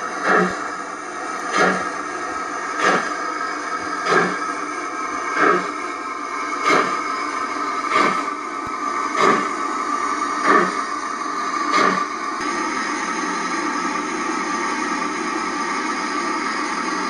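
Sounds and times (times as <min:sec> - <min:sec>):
model steam locomotive chuffing: 0:00.0 - 0:17.0
steady hum: 0:00.0 - 0:17.0.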